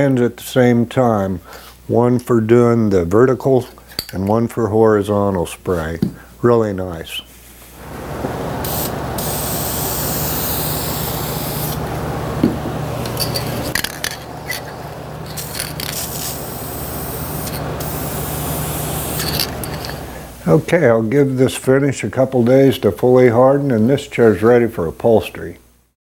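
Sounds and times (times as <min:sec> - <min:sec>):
aerosol spray can hissing: 0:08.1 - 0:12.8, 0:14.4 - 0:20.1.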